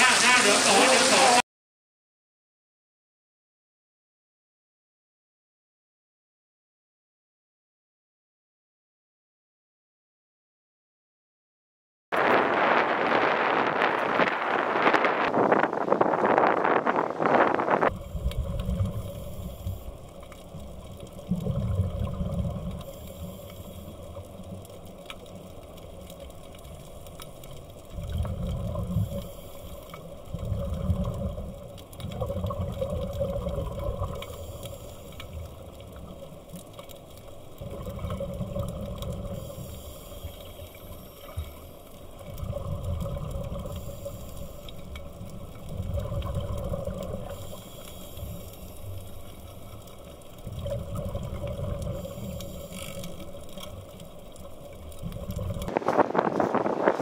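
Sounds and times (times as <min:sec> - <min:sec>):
gurgling regulator bubbles: 0:17.6 - 0:55.7
underwater hiss: 0:18.0 - 0:20.4, 0:22.8 - 0:24.3, 0:28.8 - 0:30.1, 0:34.0 - 0:35.5, 0:39.2 - 0:42.0, 0:43.5 - 0:45.0, 0:47.0 - 0:50.0, 0:50.9 - 0:53.4.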